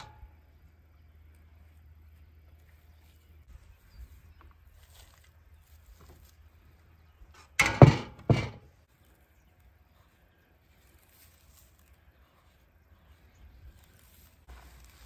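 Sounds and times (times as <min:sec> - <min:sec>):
heavy thuds: 0:07.6 - 0:08.7.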